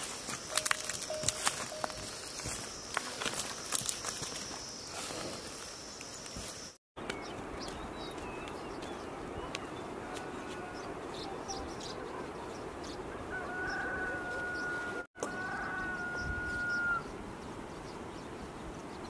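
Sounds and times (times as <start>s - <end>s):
small birds chirping: 0.2s - 13.9s
rooster crowing: 13.3s - 17.1s.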